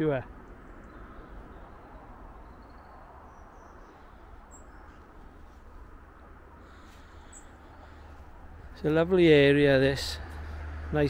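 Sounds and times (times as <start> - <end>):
faint bird chirps: 0.8 - 5.6, 6.6 - 8.1.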